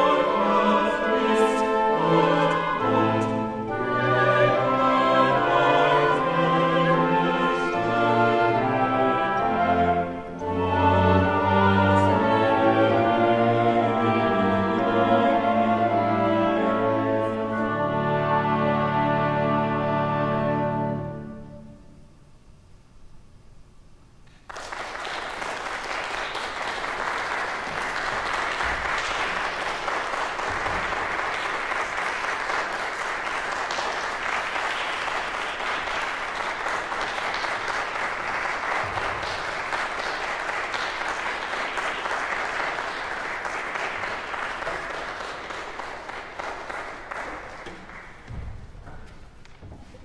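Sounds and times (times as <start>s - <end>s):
audience applauding: 24.4s - 48.5s.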